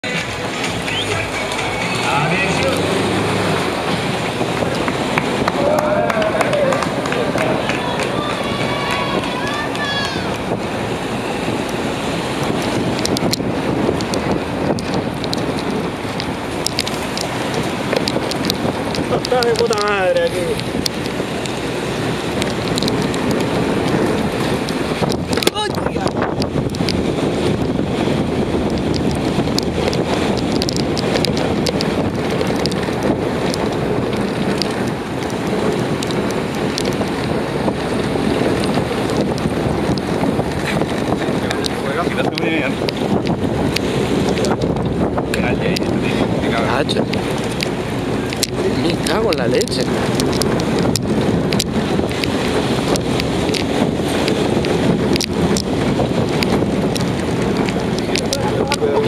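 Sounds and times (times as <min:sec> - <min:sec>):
wind buffeting microphone: 0:00.0 - 0:59.0
light clicks and rattles: 0:12.4 - 0:27.8, 0:28.6 - 0:59.0.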